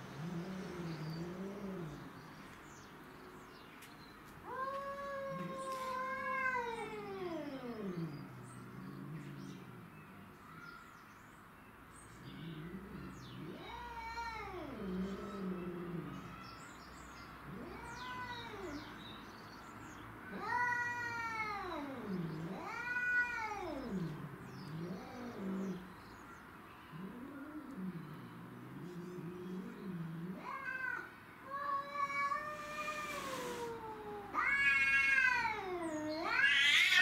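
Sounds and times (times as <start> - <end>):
cat growling: 0.1 - 2.2, 4.9 - 10.0, 12.2 - 16.4, 17.5 - 18.9, 20.3 - 25.9, 26.9 - 31.1, 32.0 - 37.0
cats yowling: 4.4 - 8.4, 12.4 - 16.6, 17.5 - 19.0, 20.3 - 25.9, 26.9 - 37.0.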